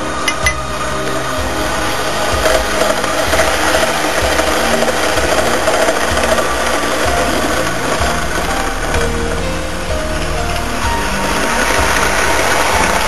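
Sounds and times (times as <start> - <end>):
model train rattling on track: 0.0 - 13.0.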